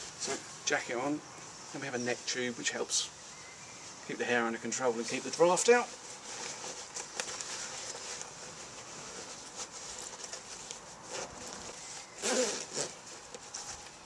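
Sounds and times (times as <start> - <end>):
jacket rustling: 0.0 - 14.0
zipper scraping: 6.2 - 13.8.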